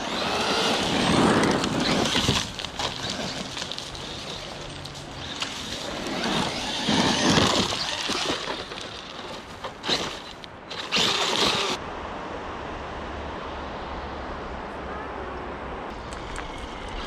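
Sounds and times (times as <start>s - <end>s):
electric motor whining: 9.8s - 11.8s.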